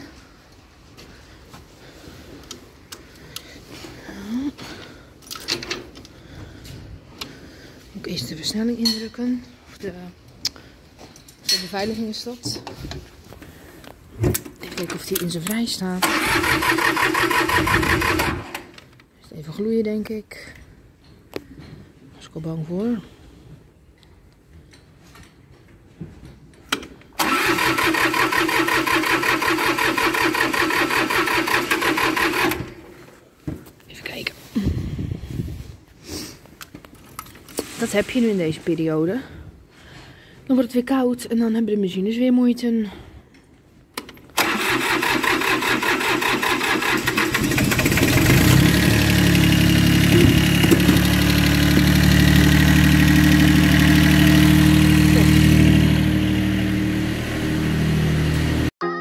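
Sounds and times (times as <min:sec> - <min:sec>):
starter motor cranking diesel engine: 0:16.0 - 0:18.9, 0:27.2 - 0:32.9, 0:44.4 - 0:58.7.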